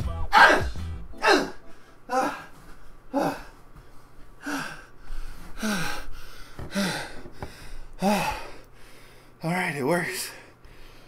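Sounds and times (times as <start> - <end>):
man grunting: 0.3 - 2.5, 3.1 - 3.5.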